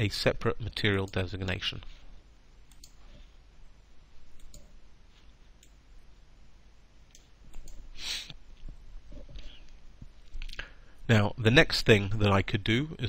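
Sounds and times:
low room hiss: 0.0 - 13.0
computer mouse clicking: 2.7 - 3.0, 4.4 - 4.7, 7.1 - 7.8
short loud hiss: 7.9 - 8.4.

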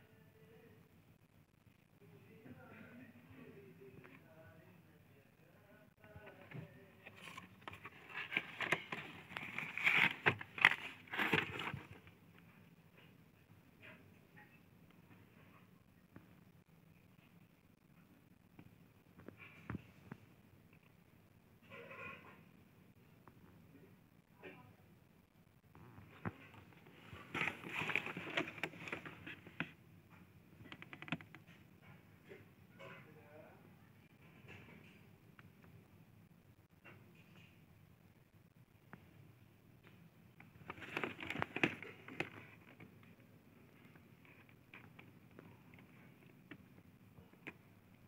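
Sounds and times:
cardboard box scraping and rustling: 7.1 - 12.0, 27.2 - 29.2.

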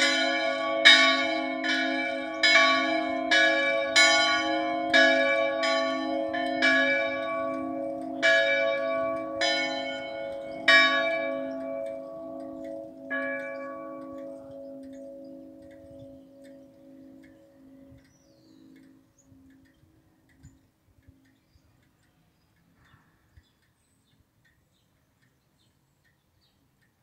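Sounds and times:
church bells ringing: 0.0 - 20.1.

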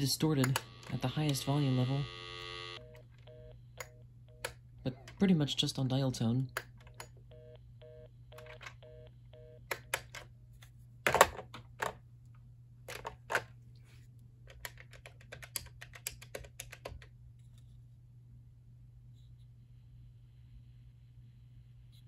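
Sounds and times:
low electrical buzz: 0.0 - 10.9.

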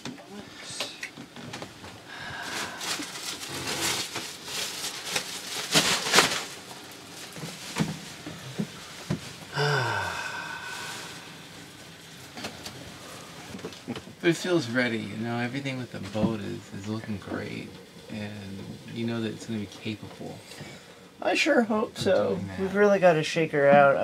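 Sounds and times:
plastic bag rustling: 1.4 - 13.9.

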